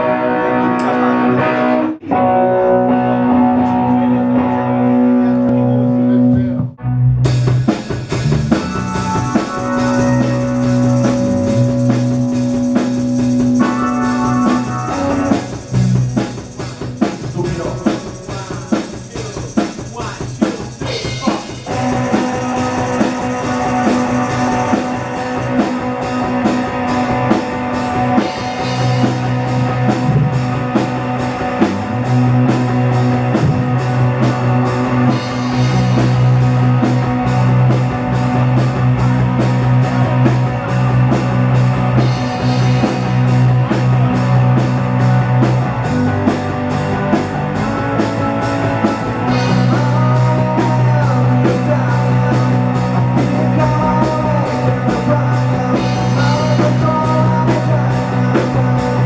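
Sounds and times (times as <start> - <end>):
electric guitar chords: 0.0 - 59.0
steady drum beat: 7.2 - 59.0.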